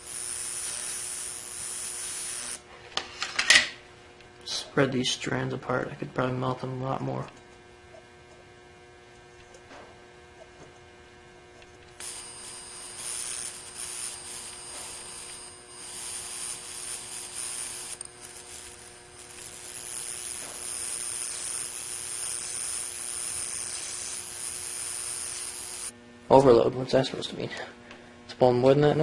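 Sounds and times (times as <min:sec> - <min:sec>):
electric arc sizzling with whine: 0:00.0 - 0:03.2, 0:11.6 - 0:26.0
faint mains hum: 0:00.0 - 0:29.0.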